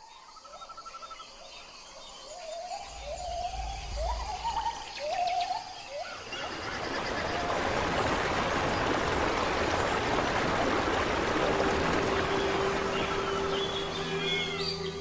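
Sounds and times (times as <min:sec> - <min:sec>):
waterfall rushing: 0:06.3 - 0:15.0.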